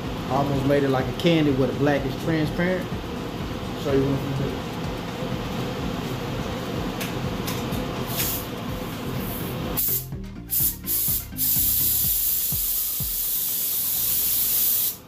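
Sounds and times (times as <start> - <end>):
steady low hum: 0.0 - 14.5
paint spray gun hissing: 9.2 - 15.0.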